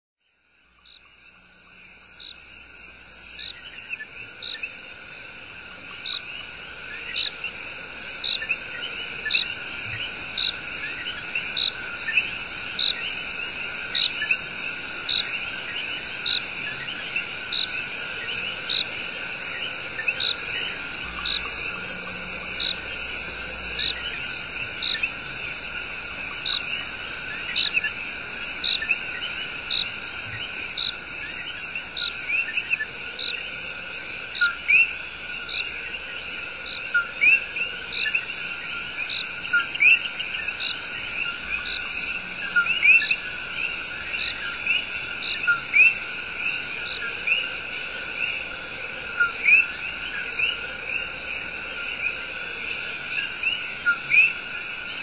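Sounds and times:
frogs and insects trilling: 0.2 - 55.0.

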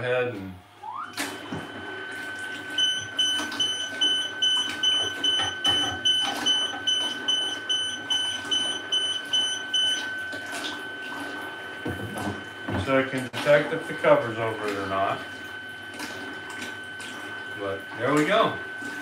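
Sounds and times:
rapid high alarm beeps: 2.8 - 10.2.

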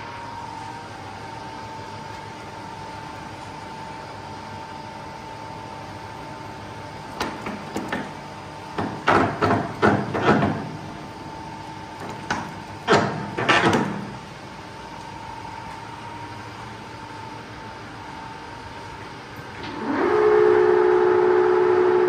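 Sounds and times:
sharp knocks and clatters: 8.8 - 10.8, 12.0 - 14.2.

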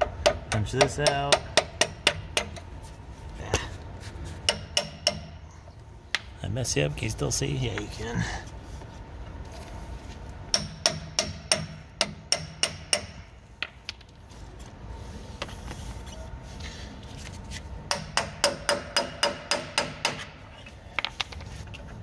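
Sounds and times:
hammer striking metal punch: 4.5 - 5.4, 10.5 - 13.3, 17.9 - 20.3.

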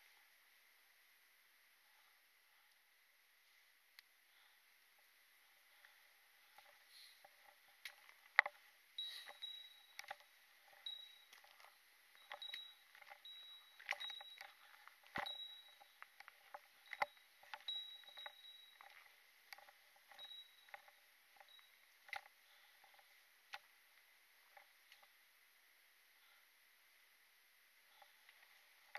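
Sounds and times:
footsteps on dirt trail: 5.7 - 23.6.

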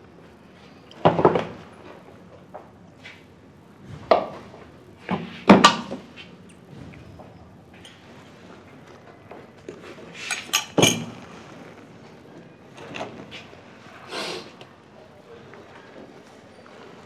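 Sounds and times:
tableware clattering: 10.2 - 11.4.

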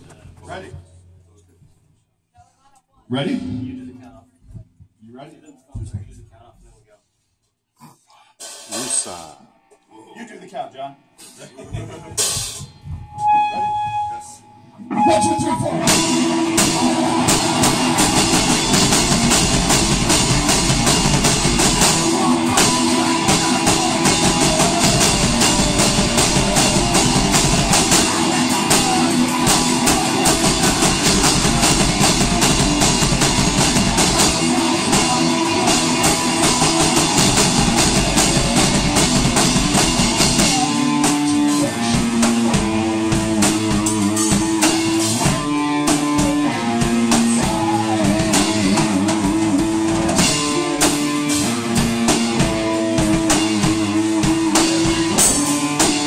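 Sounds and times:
drum kit: 3.2 - 4.9, 8.4 - 9.4, 11.1 - 14.3, 14.9 - 56.0
distorted electric guitar: 14.8 - 56.0.

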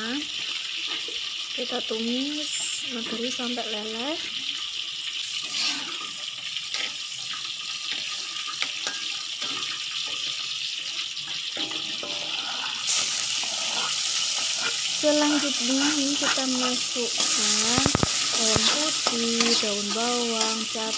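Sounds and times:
fat sizzling in a wok: 0.0 - 20.9
metal spatula scraping: 5.4 - 7.0, 11.6 - 20.9.

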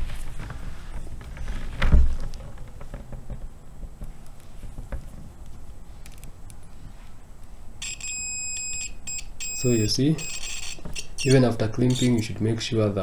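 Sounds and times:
cable and probes handling noise: 0.0 - 12.5
multimeter continuity beep: 7.8 - 12.3.

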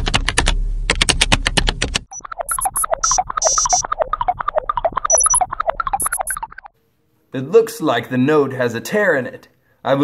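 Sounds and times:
fast electronic bleeps: 2.1 - 6.7
high chirping blips: 2.1 - 6.7.

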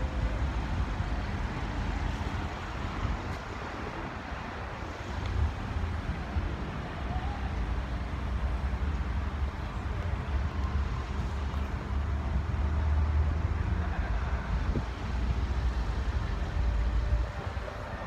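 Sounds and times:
wind buffeting microphone: 13.5 - 18.0.

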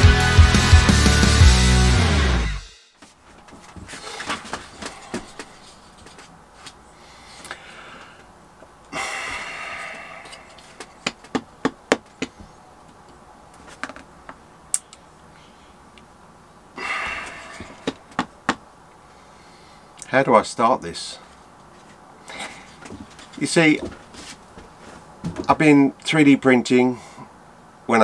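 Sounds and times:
short rustling hisses: 24.0 - 25.1.

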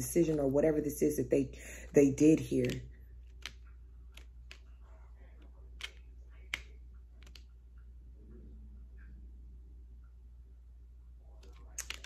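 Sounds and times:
faint low hum: 0.0 - 12.0
sharp clicks and taps: 2.6 - 4.7, 5.4 - 7.6, 11.4 - 12.0.

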